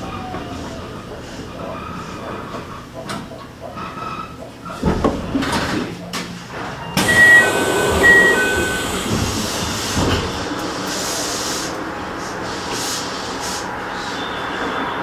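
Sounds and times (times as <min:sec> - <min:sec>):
train doors sliding: 0:00.0 - 0:14.7
two-tone door chime: 0:07.0 - 0:09.0.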